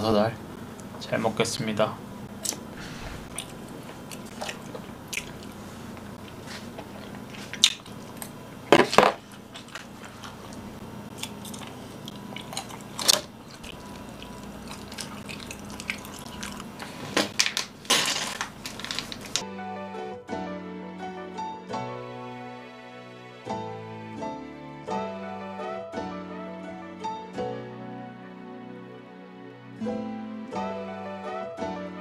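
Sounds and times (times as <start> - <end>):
faint steady hum: 0.0 - 19.4
chewing and crunching: 2.4 - 19.4.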